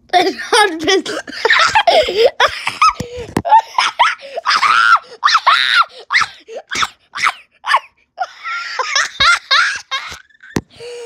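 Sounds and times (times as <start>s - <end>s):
child shrieking and squealing: 3.5s - 10.2s.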